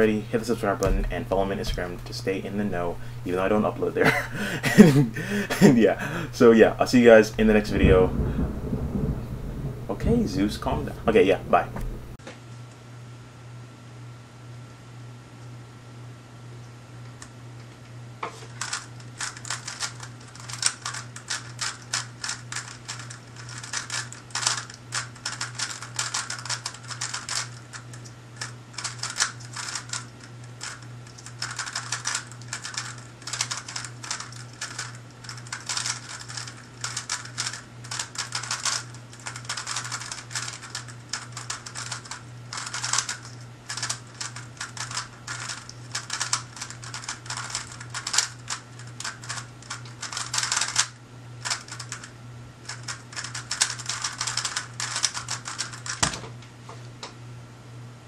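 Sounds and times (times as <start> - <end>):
steady low hum: 0.0 - 58.0
plastic puzzle cube clicking: 30.6 - 52.1, 52.7 - 56.1.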